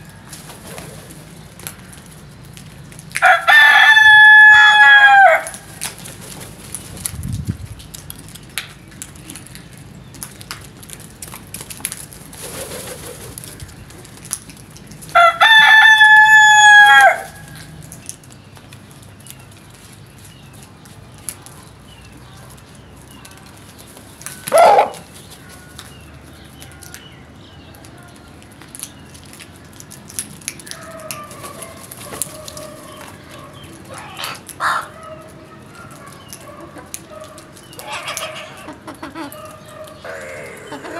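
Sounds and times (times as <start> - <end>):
rooster crowing: 3.2 - 5.6, 15.2 - 17.5
bird calls: 17.2 - 29.2, 30.6 - 40.9.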